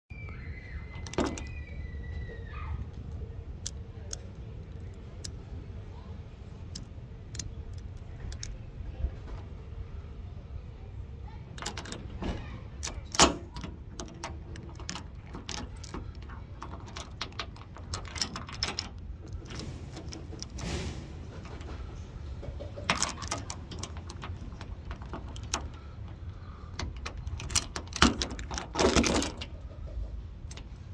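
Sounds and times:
metallic clanks of shackle and chain: 0.9s - 1.6s, 11.6s - 21.8s, 22.4s - 29.5s
padlock number wheels clicking: 0.9s - 1.6s, 6.7s - 8.6s, 11.6s - 20.8s, 22.8s - 29.5s.

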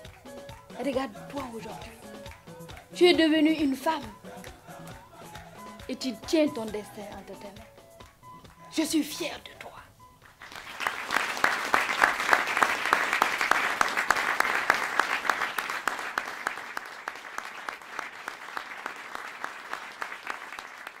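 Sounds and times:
audience applauding: 10.2s - 21.0s.

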